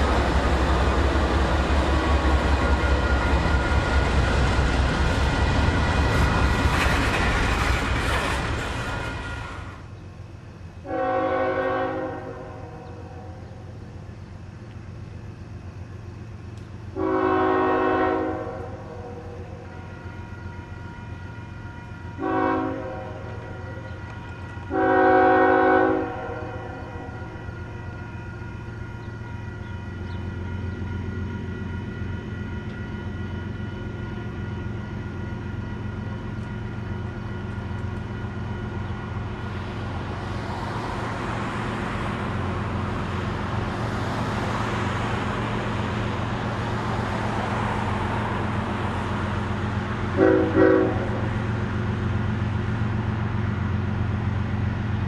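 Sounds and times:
diesel engines rumbling: 0:00.0 - 0:55.0
train horn blasts: 0:10.8 - 0:13.4, 0:16.9 - 0:33.4, 0:50.1 - 0:51.4.

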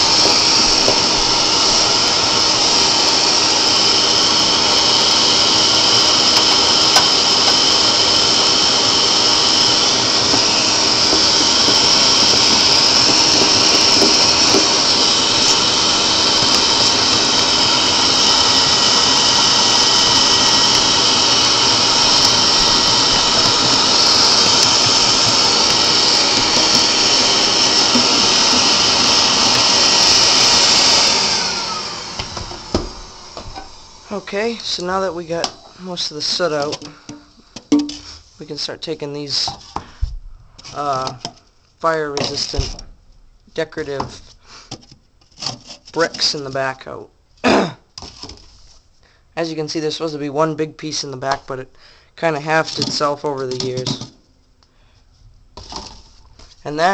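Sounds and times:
shop vac running with whine: 0:00.0 - 0:56.9.

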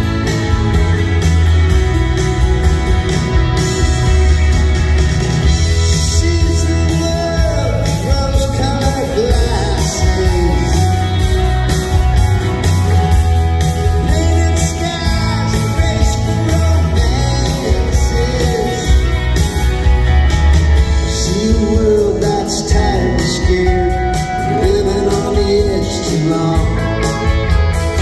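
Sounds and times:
heavy bass: 0:00.0 - 0:28.0
man singing lead vocal: 0:05.7 - 0:11.6, 0:13.8 - 0:19.5, 0:21.0 - 0:27.5.

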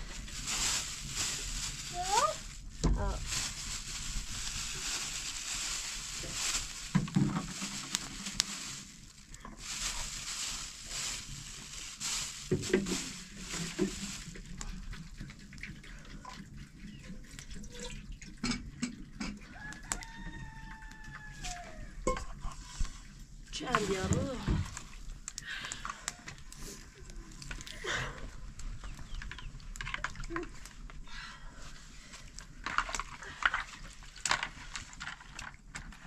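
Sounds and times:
plastic bag rustling: 0:00.0 - 0:15.4, 0:22.5 - 0:36.0
rooster crowing: 0:19.5 - 0:22.0.

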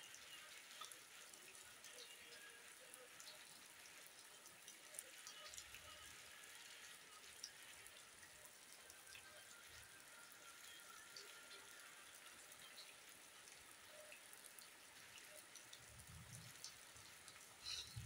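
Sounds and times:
rain falling: 0:00.0 - 0:18.0
raindrop ticks: 0:00.1 - 0:06.0, 0:10.6 - 0:18.0.

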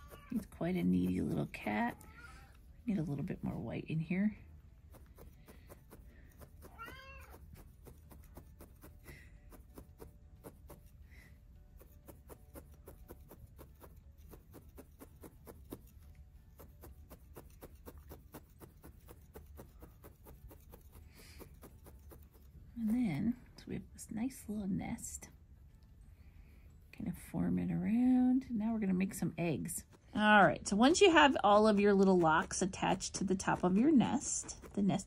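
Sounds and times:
cat meowing: 0:00.0 - 0:00.4, 0:06.6 - 0:07.4
felting needle poking wool: 0:00.0 - 0:24.5, 0:27.0 - 0:35.0.

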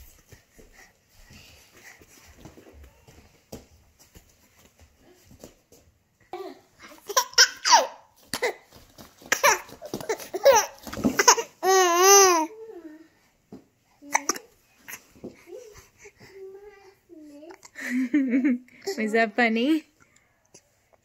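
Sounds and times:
baby laughing and squealing: 0:06.9 - 0:08.5, 0:09.3 - 0:12.5.

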